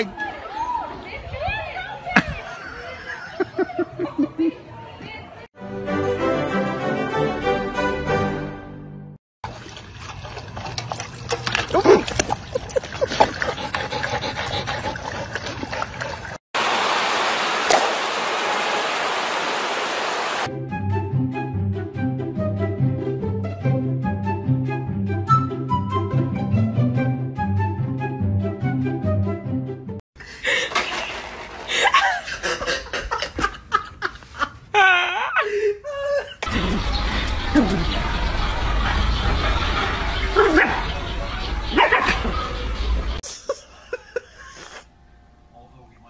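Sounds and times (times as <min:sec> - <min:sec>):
dog lapping water: 0:09.4 - 0:16.4
person laughing hard: 0:31.7 - 0:36.6, 0:43.3 - 0:44.9.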